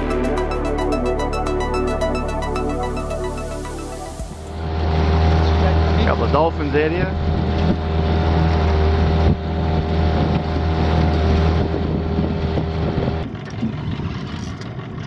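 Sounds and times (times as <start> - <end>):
outboard motor humming: 0.0 - 15.0
water wash: 2.8 - 4.7
wind noise: 11.4 - 14.6.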